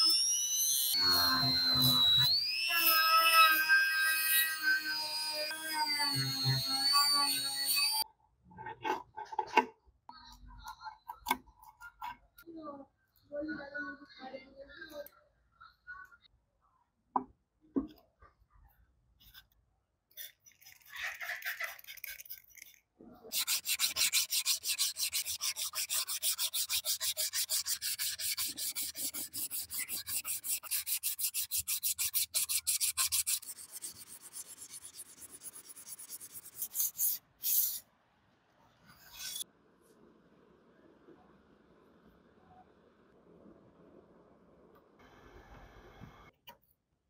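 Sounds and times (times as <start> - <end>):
abrasive block scraping steel blade: 23.3 - 37.8, 38.9 - 39.5.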